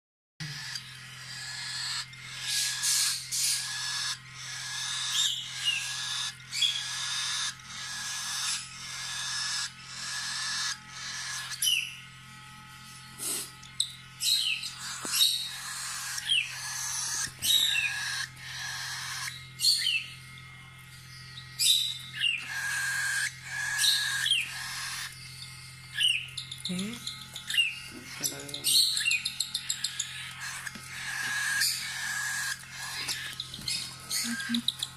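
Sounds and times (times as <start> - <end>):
bird chick hissing begging calls: 13.2 - 13.6.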